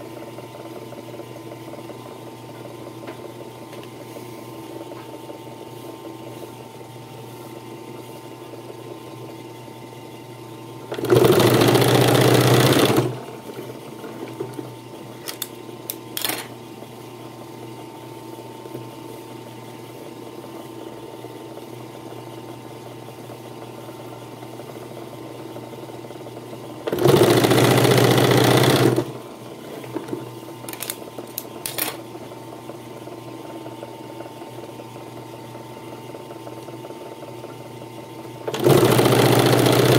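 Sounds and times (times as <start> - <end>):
sewing machine stitching leather: 10.9 - 13.2, 26.8 - 29.2, 38.5 - 39.9.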